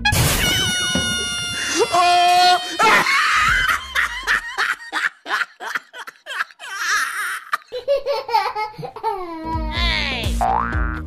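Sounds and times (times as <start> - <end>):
lower-pitched laugh: 2.6 - 9.2.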